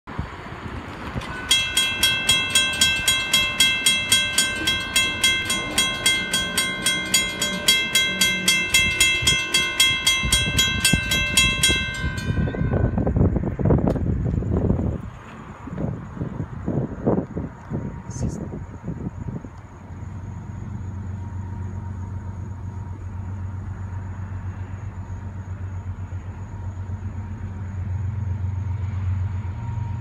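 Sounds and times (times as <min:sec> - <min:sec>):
low rumble: 0:00.1 - 0:30.0
crossing warning bell dinging: 0:01.2 - 0:14.3.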